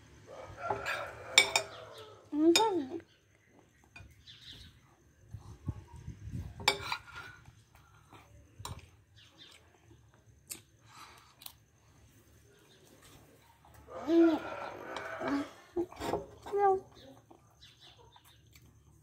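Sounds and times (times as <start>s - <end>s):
spoon clinking on ceramic plate: 1.3s - 1.8s.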